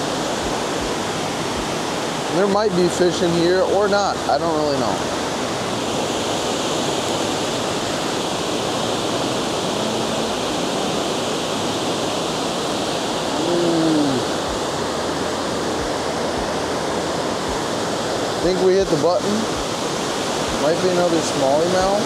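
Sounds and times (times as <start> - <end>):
water rushing over a spillway: 0.0 - 22.0
brief hum or grunt: 13.3 - 14.4.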